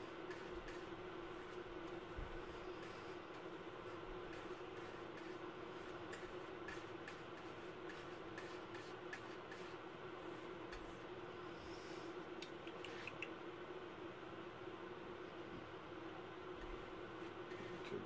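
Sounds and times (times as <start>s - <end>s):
faint room hum: 0.0s - 18.0s.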